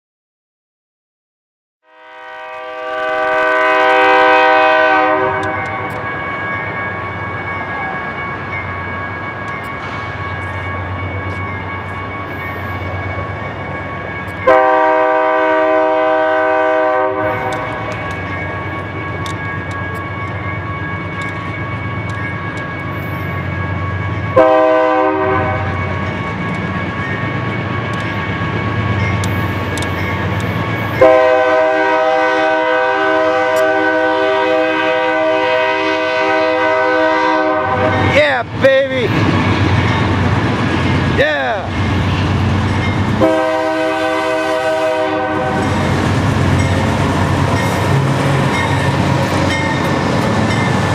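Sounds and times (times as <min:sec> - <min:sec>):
train air horn blast: 0:01.8 - 0:06.0, 0:14.5 - 0:17.9, 0:24.4 - 0:25.7, 0:31.0 - 0:38.1, 0:43.2 - 0:45.8
diesel locomotive engine rumbling: 0:02.2 - 0:50.9.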